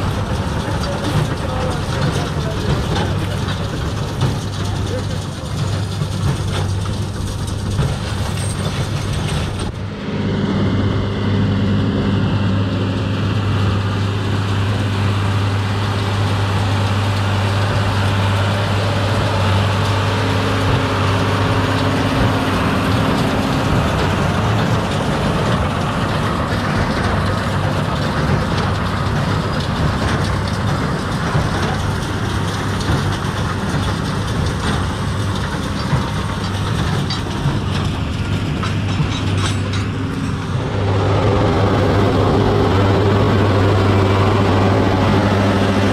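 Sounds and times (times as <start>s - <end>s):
baler machinery working: 0.0s - 45.9s
tractor engine under load: 0.0s - 45.9s.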